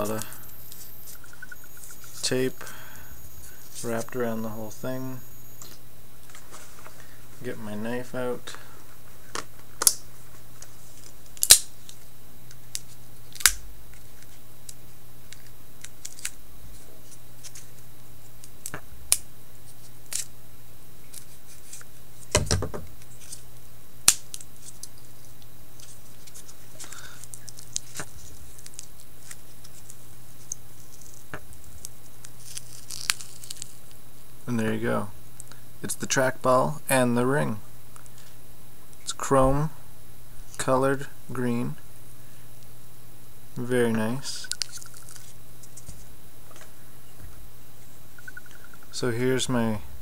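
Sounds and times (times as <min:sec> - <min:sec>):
low steady hum: 0:00.0 - 0:50.0.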